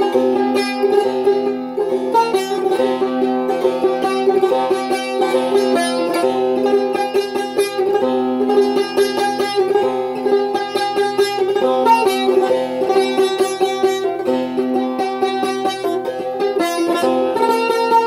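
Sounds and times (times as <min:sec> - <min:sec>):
plucked lute notes: 0:00.0 - 0:18.0.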